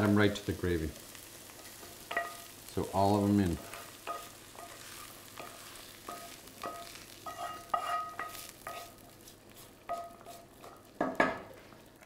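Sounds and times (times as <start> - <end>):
wooden spoon knocking on cookware: 9.9 - 11.5.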